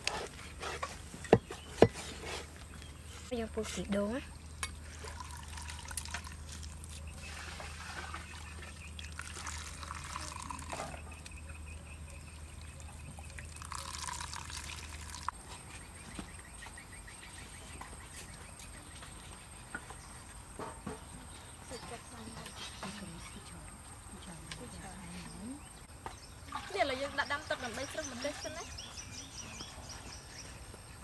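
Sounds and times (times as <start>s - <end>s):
liquid trickling into strainer: 4.3s - 11.0s, 12.4s - 15.3s.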